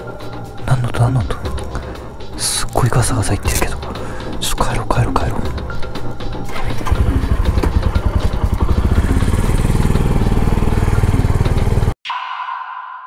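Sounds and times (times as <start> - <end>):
motorcycle engine running: 6.5 - 12.0
ringing tone: 12.0 - 13.0.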